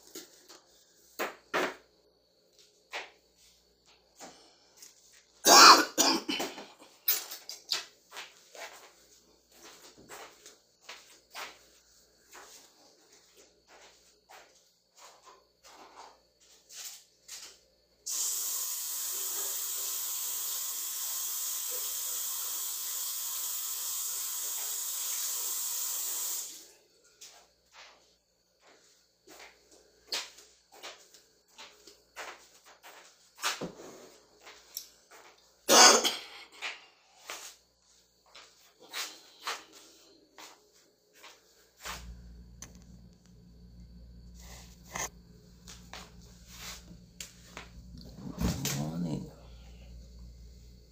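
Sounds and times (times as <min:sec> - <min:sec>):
soft scuffing footsteps: 0:07.7 - 0:17.7, 0:27.2 - 0:35.5, 0:36.6 - 0:43.7, 0:44.4 - 0:48.8
hiss of spraying water: 0:18.0 - 0:26.7.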